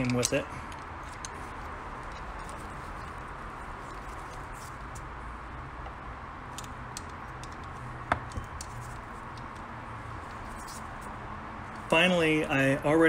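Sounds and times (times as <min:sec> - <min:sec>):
hand tools clicking and tapping: 0:00.0 - 0:03.3, 0:05.8 - 0:09.7
steady background hiss: 0:00.0 - 0:13.0.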